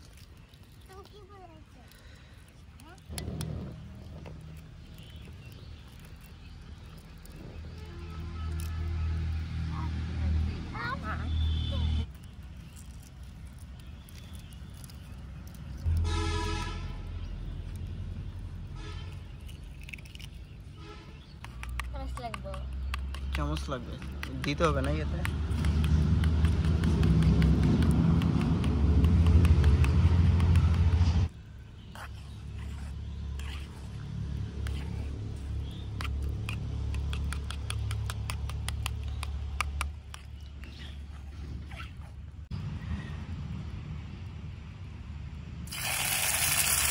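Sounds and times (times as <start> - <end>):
vehicle horn toot: 16.0 - 17.0, 18.8 - 19.2.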